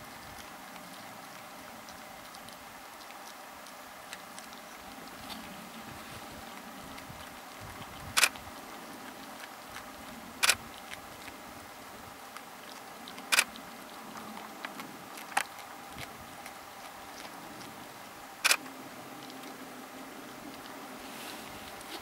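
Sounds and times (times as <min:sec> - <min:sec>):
faint background hum: 0:00.0 - 0:22.0
camera shutter clicks: 0:08.2 - 0:08.4.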